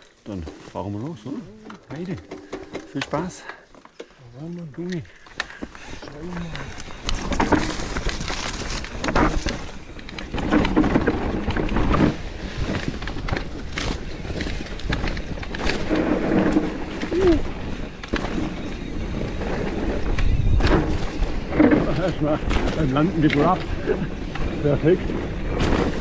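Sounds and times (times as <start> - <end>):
bike knocking and rattling: 0.0 - 26.0
tyres rumbling on trail: 0.0 - 26.0
wind noise on microphone: 6.5 - 26.0.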